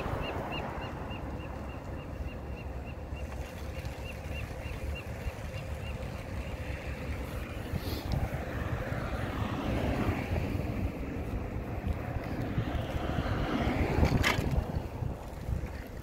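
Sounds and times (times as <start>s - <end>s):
wind buffeting microphone: 5.7s - 16.0s
tyres rumbling on pavement: 6.6s - 16.0s.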